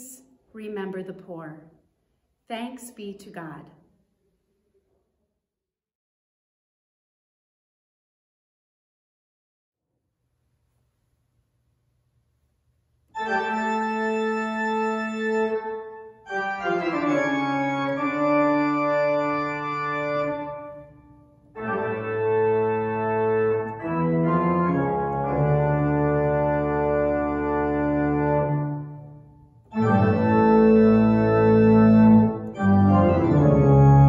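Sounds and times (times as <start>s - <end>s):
sustained organ chords: 13.1s - 34.0s.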